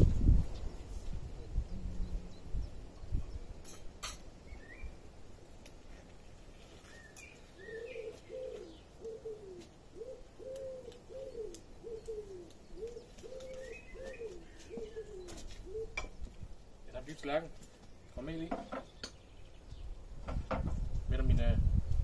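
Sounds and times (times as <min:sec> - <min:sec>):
small birds chirping: 0:00.2 - 0:22.0
pigeon cooing: 0:07.5 - 0:16.2.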